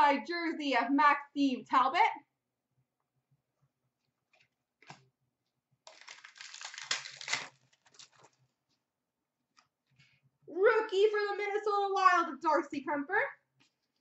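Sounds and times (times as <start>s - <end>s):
plastic wrapper crinkling and tearing: 5.8s - 8.5s.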